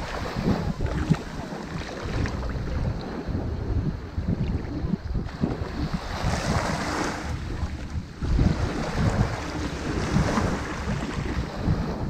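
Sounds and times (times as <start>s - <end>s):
wind rumble on microphone: 0.0s - 12.0s
waves washing up a shingle beach: 5.2s - 12.0s.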